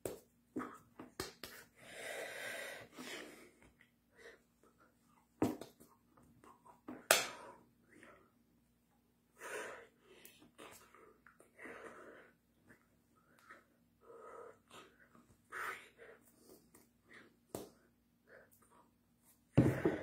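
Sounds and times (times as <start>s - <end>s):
hands slapping: 0.0s - 1.7s, 5.4s - 6.0s, 6.9s - 7.5s, 17.5s - 17.8s.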